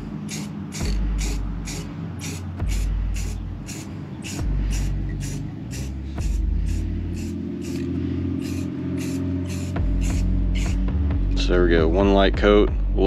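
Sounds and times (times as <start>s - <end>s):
deep bass line: 0.0s - 0.2s, 0.8s - 3.7s, 4.4s - 7.4s, 9.4s - 13.0s
ticking hi-hat: 0.0s - 11.0s.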